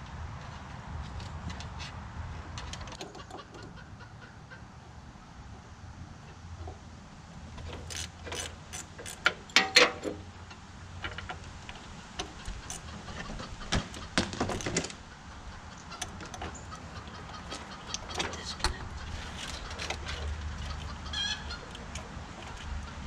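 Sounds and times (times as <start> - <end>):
clicks and clinks of metal parts: 7.6 - 12.9, 21.6 - 22.9.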